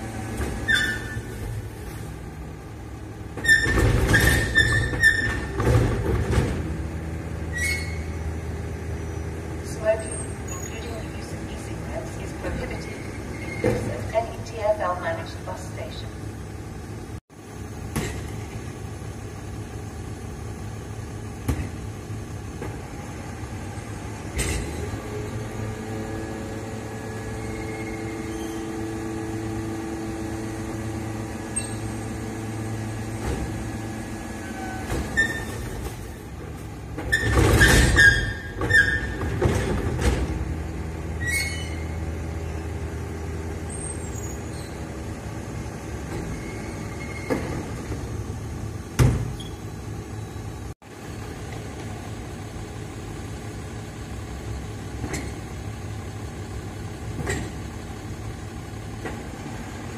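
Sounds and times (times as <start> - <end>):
refuse truck engine running: 0.0 - 59.9
bins clattering and banging: 3.4 - 6.8, 34.8 - 40.6.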